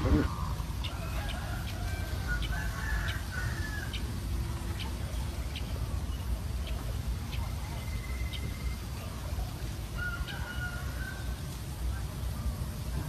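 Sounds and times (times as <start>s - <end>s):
chickens clucking: 0.0s - 13.0s
rooster crowing: 0.8s - 4.1s, 9.9s - 11.4s.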